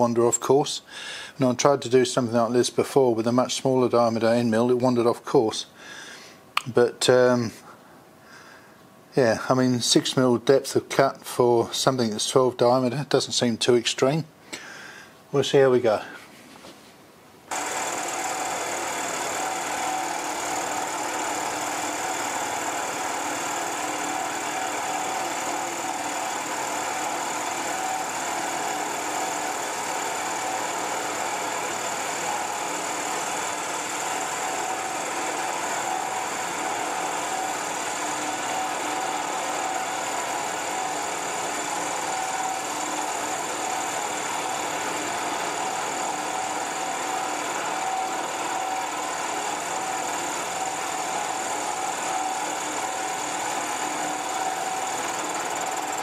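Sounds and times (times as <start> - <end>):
milling machine cutting steel: 17.5 - 56.0.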